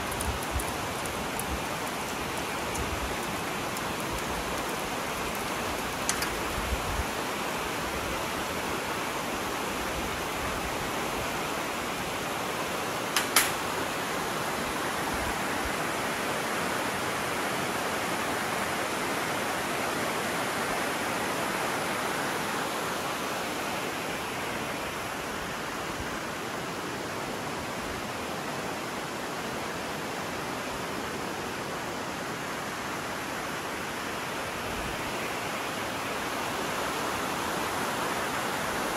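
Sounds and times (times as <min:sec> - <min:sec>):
small clicks: 0:00.0 - 0:06.5, 0:13.2 - 0:13.6
river rushing over rocks: 0:00.0 - 0:38.9.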